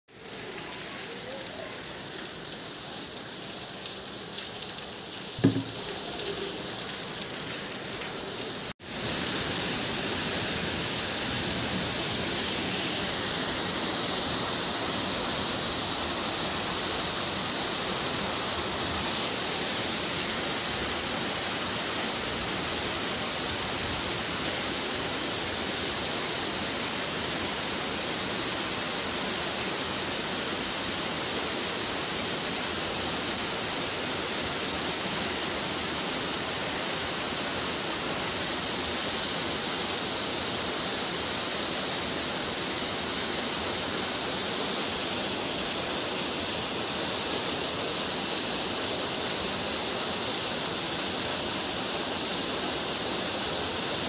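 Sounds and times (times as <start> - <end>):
heavy rain: 0.1 - 54.0
sharp knock: 5.4 - 5.8.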